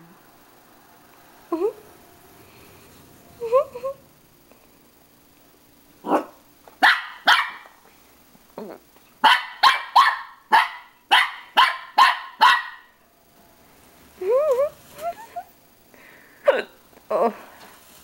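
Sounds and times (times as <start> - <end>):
small dog barking: 6.0 - 7.7, 9.2 - 13.0.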